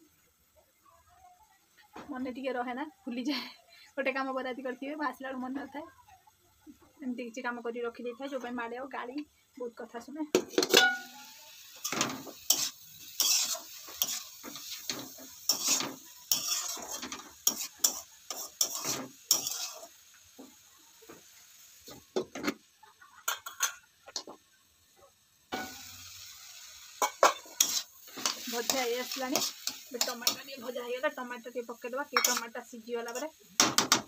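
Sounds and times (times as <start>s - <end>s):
vegetables sizzling in pan: 1.4s - 34.0s
spoon clinking against utensils: 10.5s - 19.9s, 32.2s - 32.5s
metal spoon scraping pan: 10.5s - 20.0s, 27.0s - 30.7s, 32.1s - 33.4s.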